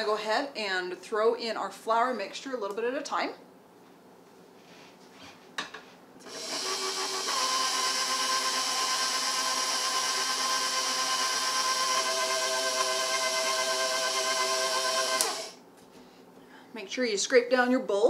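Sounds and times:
stand mixer motor whine: 6.3s - 15.6s.

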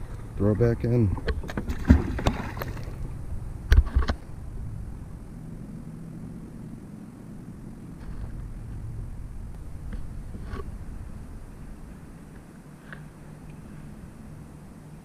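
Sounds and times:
low steady noise: 0.0s - 15.0s
knocks and clunks in kayak: 1.1s - 3.0s.

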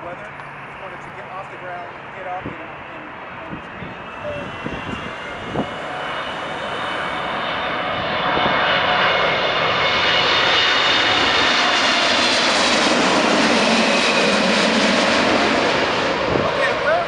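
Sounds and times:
high fan whine: 0.0s - 8.6s
jet engine roar: 0.0s - 17.0s.

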